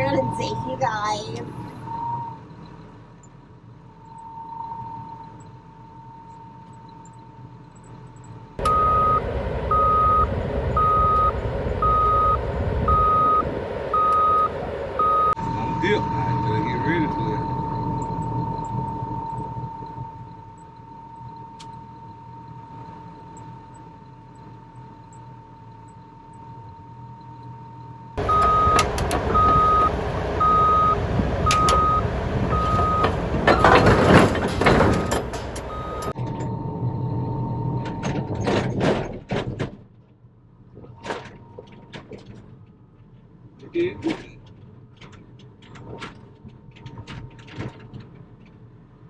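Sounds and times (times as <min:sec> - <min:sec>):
backup alarm beeping: 0:00.0 - 0:02.8, 0:03.9 - 0:37.8
diesel engine whining: 0:00.0 - 0:49.0
heavy engine noise: 0:00.0 - 0:49.0.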